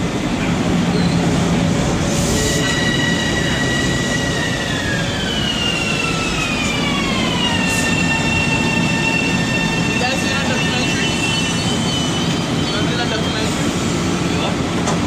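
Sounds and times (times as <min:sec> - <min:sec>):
train brake whine: 0:02.1 - 0:13.0.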